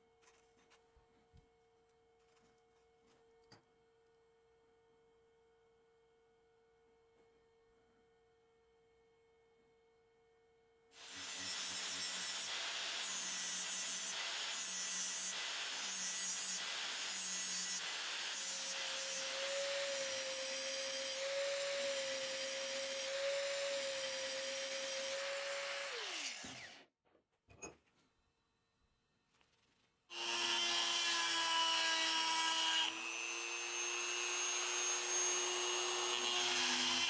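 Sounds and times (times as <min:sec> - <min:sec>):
angle grinder cutting steel: 0:11.0 - 0:26.8, 0:30.1 - 0:37.0.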